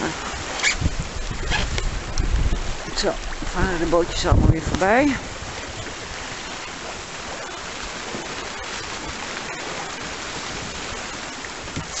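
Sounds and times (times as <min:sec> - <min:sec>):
water rushing around a yacht: 0:00.0 - 0:12.0
wind rushing: 0:00.4 - 0:06.4.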